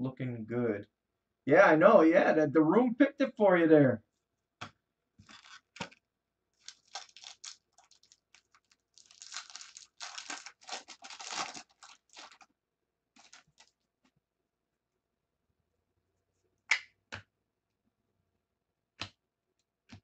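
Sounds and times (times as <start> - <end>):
foil wrapper tearing and crinkling: 5.2 - 6.0, 6.6 - 12.4, 13.2 - 13.8.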